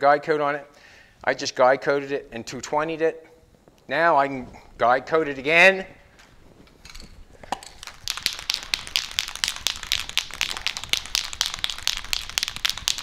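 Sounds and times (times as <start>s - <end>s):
aerosol can rattling when shaken: 6.9s - 13.0s.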